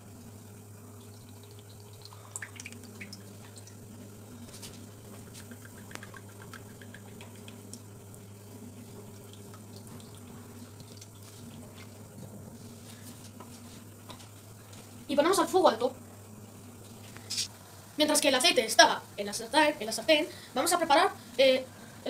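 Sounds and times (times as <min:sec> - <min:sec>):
steady low hum: 0:00.0 - 0:22.0
oil trickling into pan: 0:00.5 - 0:03.9, 0:04.8 - 0:12.0.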